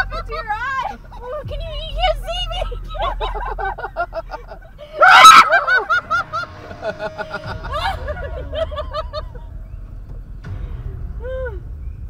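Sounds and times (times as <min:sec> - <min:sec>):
people laughing: 0:00.0 - 0:09.5.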